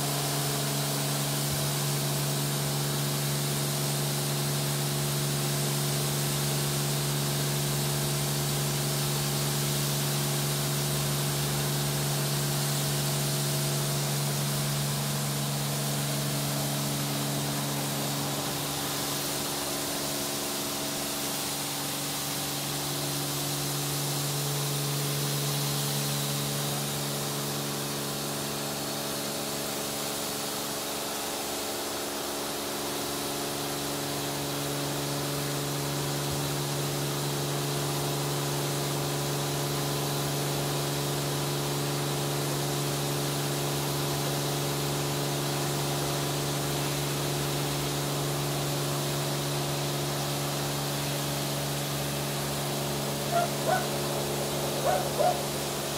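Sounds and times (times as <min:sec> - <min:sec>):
electric machine hum: 0:50.6 - 0:55.9
water spray hissing: 0:52.2 - 0:55.9.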